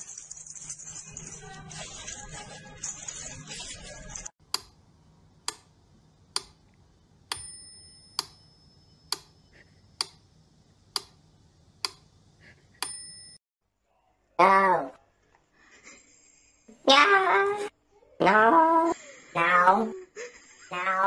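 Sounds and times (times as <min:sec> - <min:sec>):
short bell-like ring: 0:07.4 - 0:09.1, 0:12.8 - 0:13.4.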